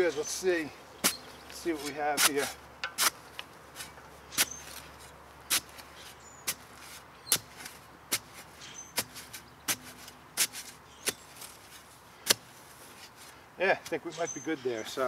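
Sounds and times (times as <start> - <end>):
spade chopping into soil: 1.8 - 3.2, 3.8 - 4.8, 5.5 - 11.6, 12.2 - 12.5.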